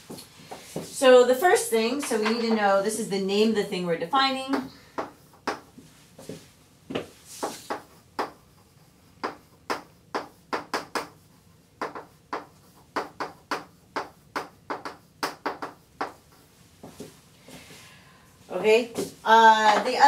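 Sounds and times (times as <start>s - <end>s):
chalk writing on blackboard: 5.0s - 17.0s.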